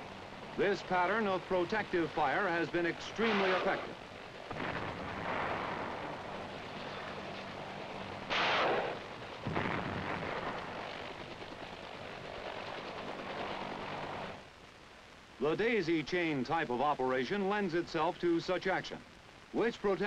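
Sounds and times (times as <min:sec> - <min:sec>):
gunfire striking the ground: 0:08.3 - 0:10.7
helicopter engine and rotor drone: 0:10.6 - 0:14.4.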